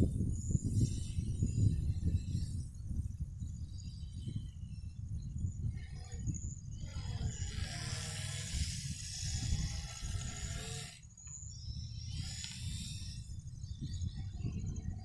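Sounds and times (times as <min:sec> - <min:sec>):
wind rumble on microphone: 0:00.0 - 0:15.0
model plane motor whirring: 0:05.6 - 0:15.0.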